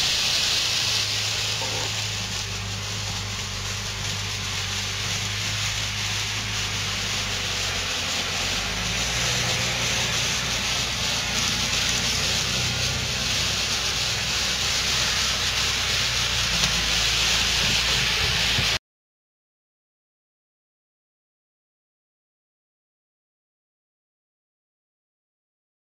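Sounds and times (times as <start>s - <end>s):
low motor hum: 0.0s - 18.8s
model train wheels rolling on track: 0.0s - 18.8s.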